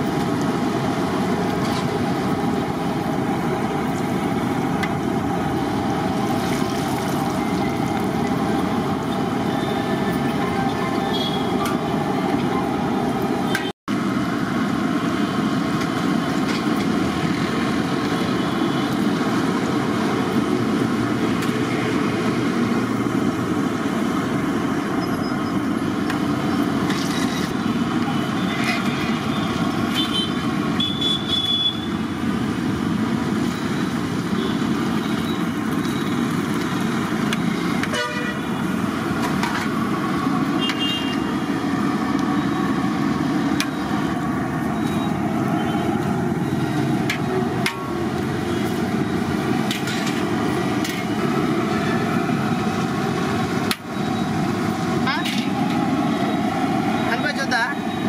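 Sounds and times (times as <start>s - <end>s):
street traffic noise: 0.0s - 58.0s
vehicle horn toots: 11.1s - 11.5s, 29.9s - 32.0s, 37.9s - 38.5s, 40.6s - 41.3s.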